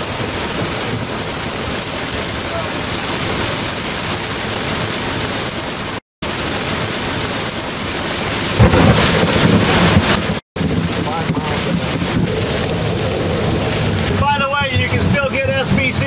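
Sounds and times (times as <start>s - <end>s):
steady rain falling: 0.0s - 16.0s
low rumble of thunder: 8.5s - 16.0s.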